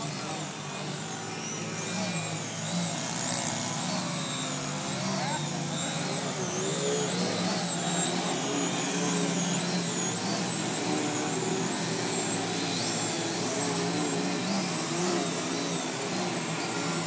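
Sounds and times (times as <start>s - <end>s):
model plane motors whining: 0.0s - 17.0s
steady low drone: 0.0s - 17.0s.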